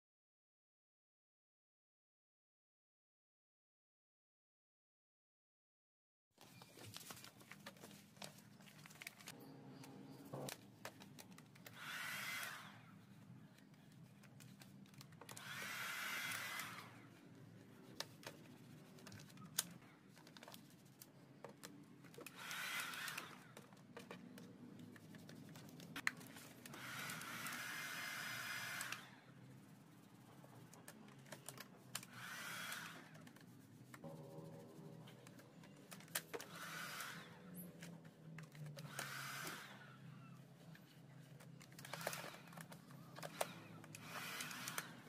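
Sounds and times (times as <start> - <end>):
hot-air blower blasts: 11.8 - 12.8, 15.3 - 17.0, 22.4 - 23.5, 26.7 - 29.2.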